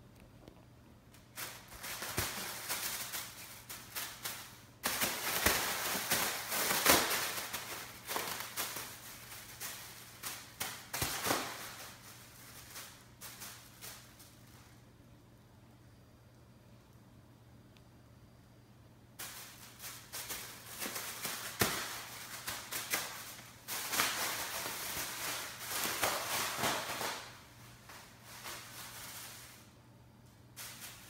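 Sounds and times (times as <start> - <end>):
plastic bag crinkling: 1.1 - 14.8, 19.2 - 29.7.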